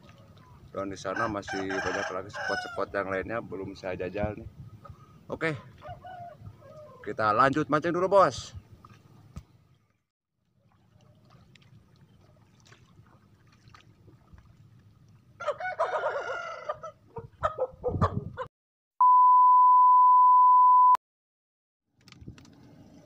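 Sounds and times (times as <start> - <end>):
rooster crowing: 1.1 - 2.8, 5.8 - 6.9, 15.4 - 17.0
electronic beep tone: 19.0 - 21.0.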